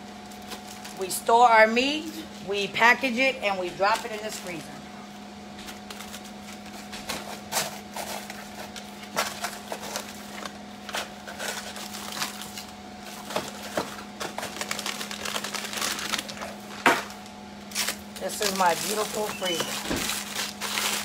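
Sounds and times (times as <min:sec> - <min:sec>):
plastic crinkling: 0:05.6 - 0:21.0
frozen packs knocking together: 0:05.7 - 0:21.0.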